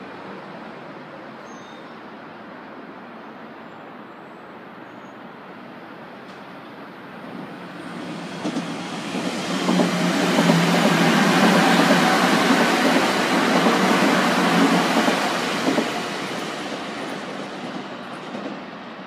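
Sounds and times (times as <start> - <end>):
train wheels rumbling on rail: 6.2 - 19.0
wheels clacking over rail joints: 7.8 - 18.6.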